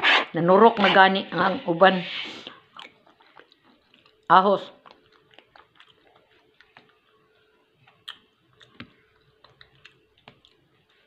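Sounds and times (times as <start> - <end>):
chewing mouth sounds: 2.5 - 11.0.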